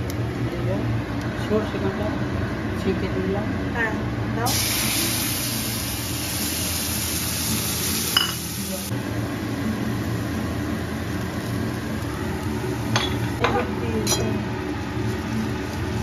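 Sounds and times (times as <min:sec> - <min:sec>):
egg sizzling in a wok: 0:04.5 - 0:13.4
steady low hum: 0:08.6 - 0:16.0.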